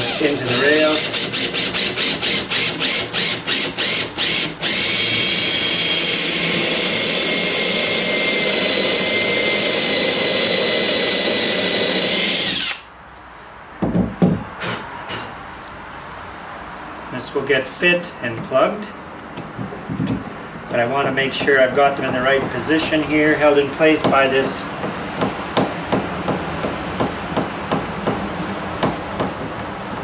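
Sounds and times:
cordless drill boring into wood: 0:00.0 - 0:12.9.

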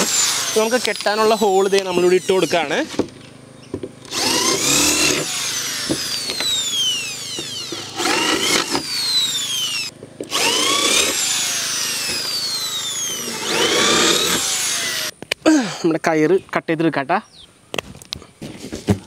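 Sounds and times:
electric drill boring wood: 0:00.0 - 0:02.9, 0:03.6 - 0:15.1.

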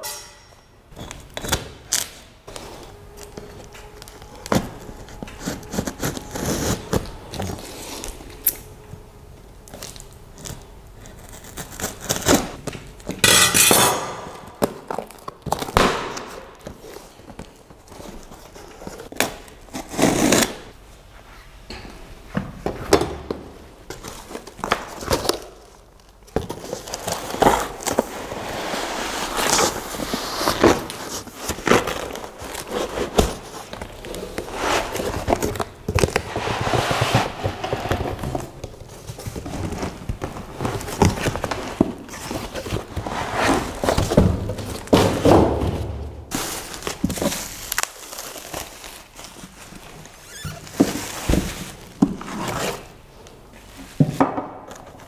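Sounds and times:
bubble wrap crinkling: 0:01.0 - 0:13.2, 0:14.3 - 0:20.8, 0:23.8 - 0:45.5, 0:46.1 - 0:53.9
foam sheet pulled out: 0:02.5 - 0:08.4, 0:27.2 - 0:38.3, 0:39.6 - 0:45.3.

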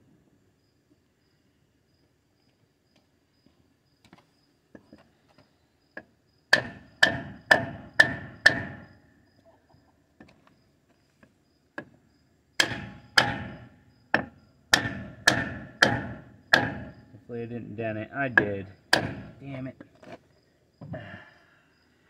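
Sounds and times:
hammer knocking on wood block: 0:06.5 - 0:08.9, 0:12.6 - 0:17.0, 0:18.3 - 0:19.4.

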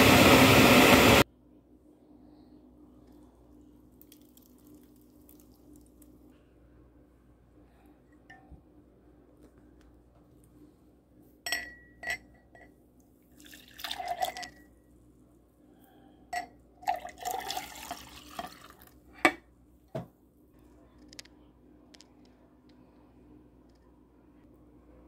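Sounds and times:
juice pouring into a glass: 0:04.0 - 0:06.1, 0:13.3 - 0:14.7, 0:16.8 - 0:19.0
glass clinking: 0:11.5 - 0:12.8.

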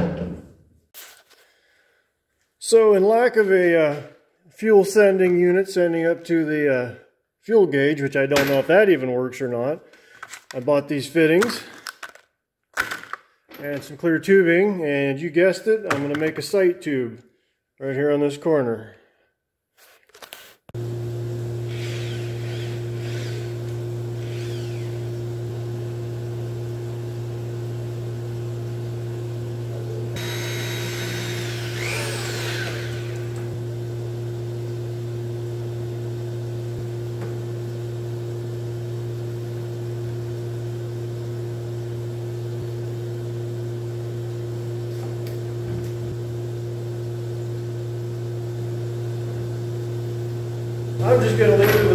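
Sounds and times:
electric motor hum: 0:20.8 - 0:51.9.

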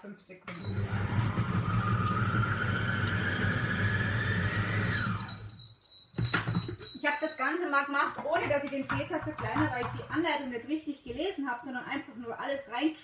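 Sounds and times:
food processor motor whine: 0:00.5 - 0:05.6.

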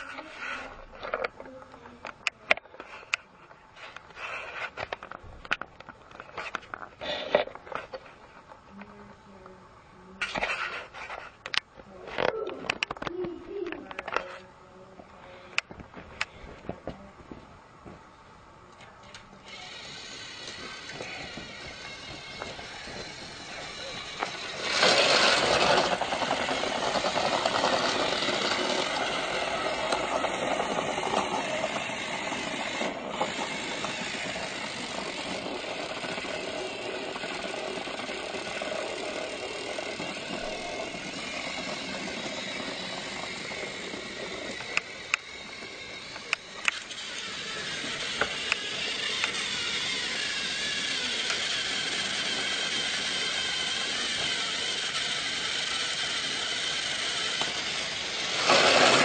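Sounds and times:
motor running with rattling: 0:18.8 - 0:59.0.

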